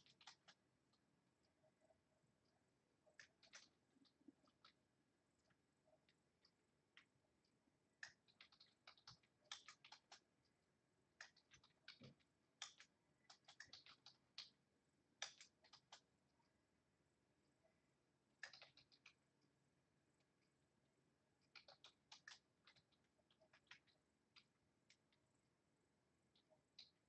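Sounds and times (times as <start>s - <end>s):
typing on computer keyboard: 0.0s - 0.6s, 3.2s - 4.8s, 8.0s - 10.3s, 11.2s - 14.6s, 15.2s - 16.1s, 18.4s - 19.2s, 21.4s - 24.5s.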